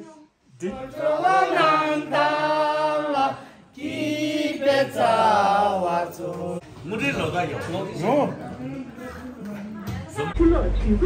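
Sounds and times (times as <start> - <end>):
voices singing together: 0.5 - 6.8.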